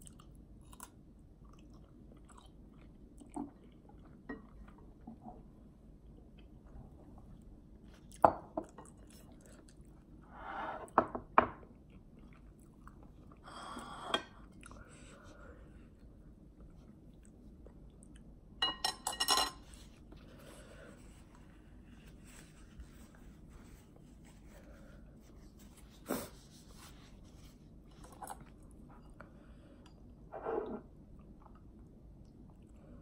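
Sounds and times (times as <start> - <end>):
person chewing noodles: 0.0 - 5.0, 11.7 - 13.9.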